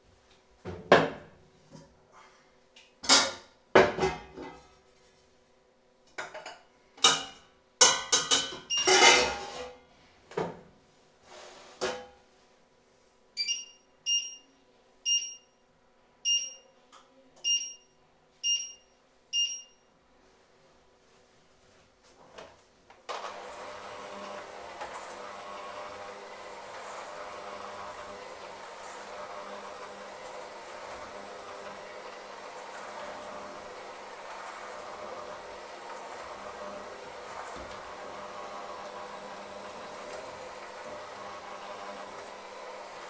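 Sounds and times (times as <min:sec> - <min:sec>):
short electronic beeps: 0:17.4 - 0:19.8.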